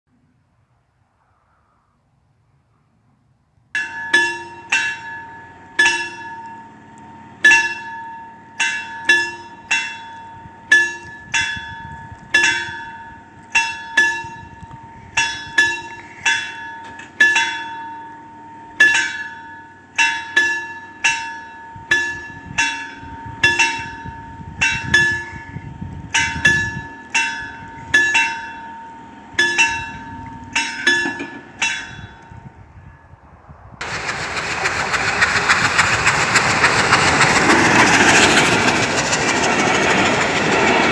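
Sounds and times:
level crossing bells ringing: 0:03.8 - 0:32.4.

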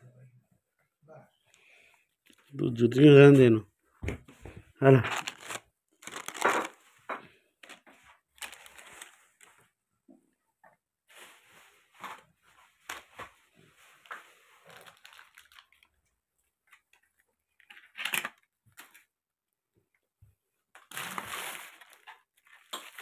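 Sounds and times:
plastic packaging crinkling: 0:04.9 - 0:06.9, 0:07.6 - 0:09.6, 0:14.0 - 0:16.0, 0:17.6 - 0:19.0, 0:20.8 - 0:23.0.

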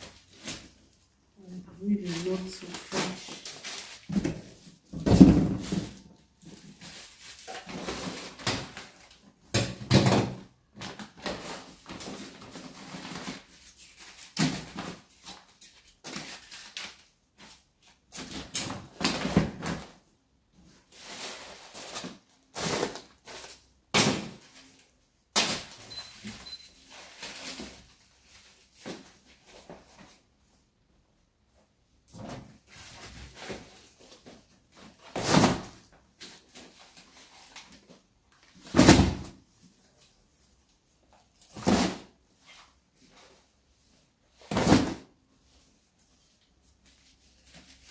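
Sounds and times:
plastic bags rustling: 0:01.6 - 0:09.2.

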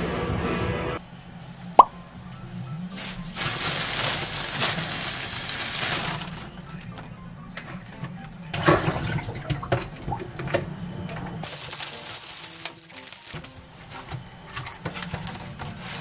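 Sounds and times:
plastic bags crinkling: 0:03.0 - 0:06.6, 0:11.5 - 0:14.0.

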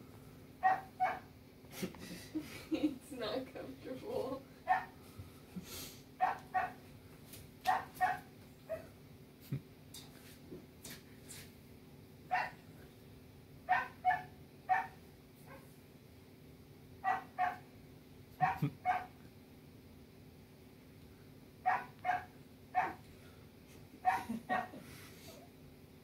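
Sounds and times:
dog barking: 0:00.6 - 0:01.3, 0:04.7 - 0:05.0, 0:06.2 - 0:06.8, 0:07.7 - 0:08.9, 0:12.3 - 0:12.6, 0:13.7 - 0:15.6, 0:17.0 - 0:17.6, 0:18.4 - 0:19.2, 0:21.6 - 0:23.0, 0:24.0 - 0:24.7.

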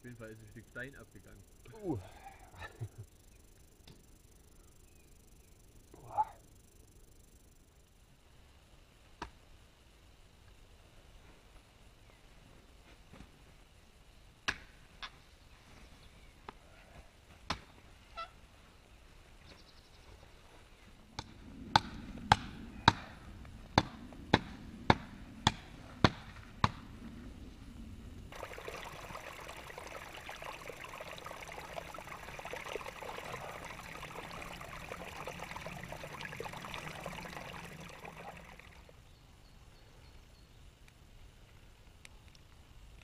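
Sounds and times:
brook trickling over stones: 0:28.3 - 0:39.0.

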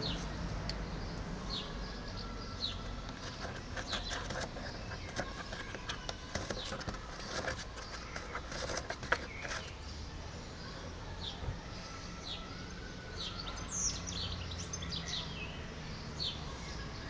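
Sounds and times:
birds chirping: 0:00.0 - 0:17.0
small plastic clicks and scrapes: 0:03.0 - 0:09.8.

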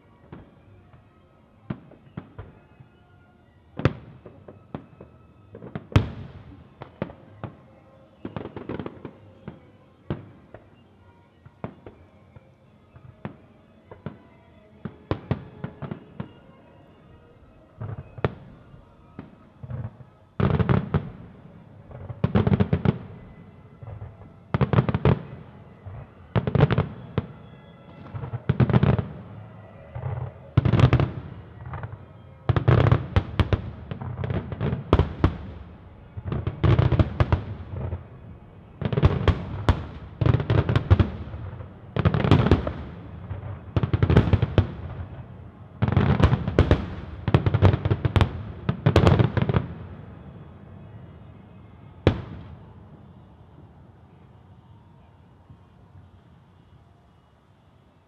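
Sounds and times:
firework crackling: 0:17.8 - 0:50.8.

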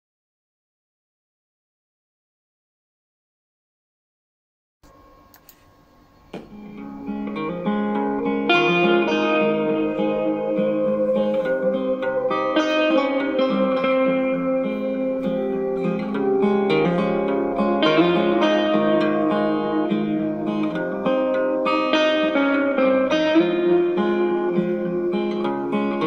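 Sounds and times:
plucked guitar through small amplifier: 0:06.3 - 0:26.0.

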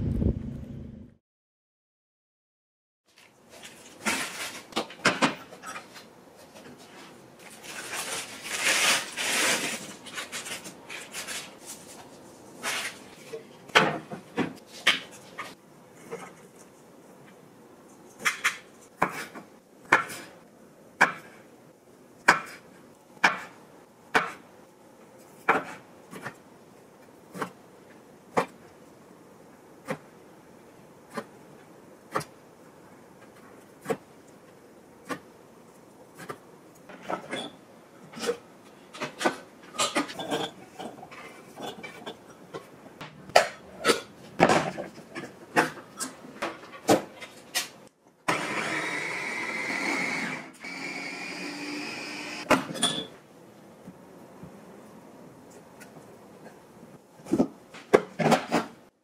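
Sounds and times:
rustling handling noise: 0:03.1 - 0:05.0, 0:05.7 - 0:13.6.

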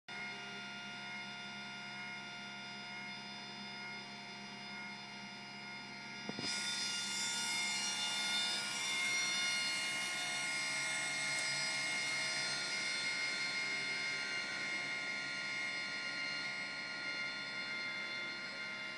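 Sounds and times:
electrical hum: 0:00.1 - 0:18.9
gear motor whirring: 0:06.2 - 0:18.2.

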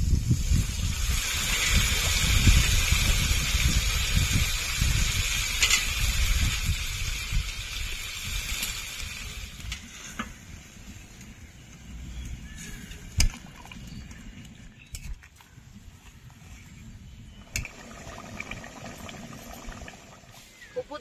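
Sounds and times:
water pouring into a wok: 0:00.1 - 0:09.6, 0:17.6 - 0:20.4.

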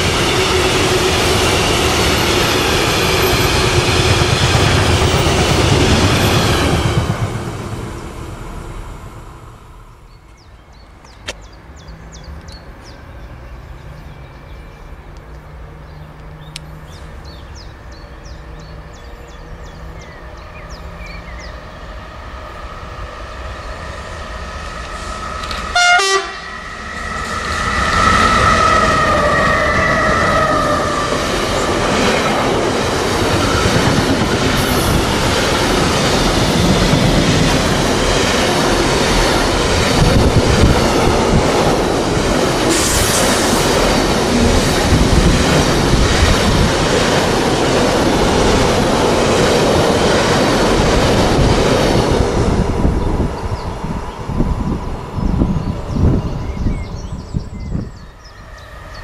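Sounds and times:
train rumbling: 0:00.0 - 0:59.0
train horn blast: 0:25.4 - 0:26.9.

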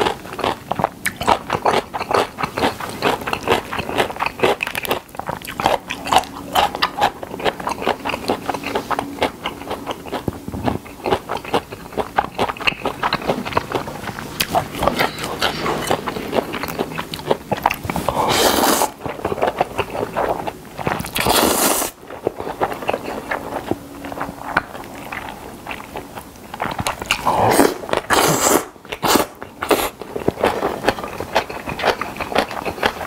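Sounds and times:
wet chewing and lip smacking: 0:00.0 - 0:33.0
noodle slurping: 0:11.4 - 0:22.0, 0:26.6 - 0:30.8.

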